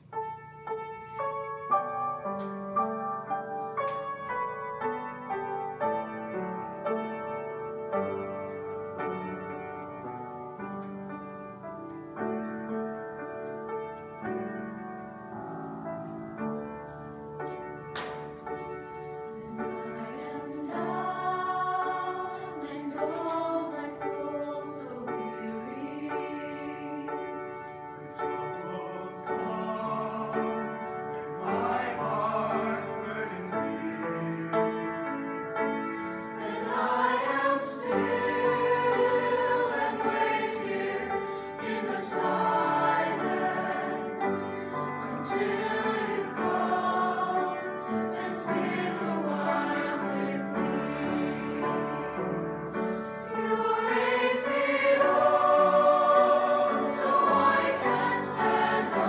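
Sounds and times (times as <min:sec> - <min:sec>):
choir singing held notes: 0:16.4 - 0:59.0.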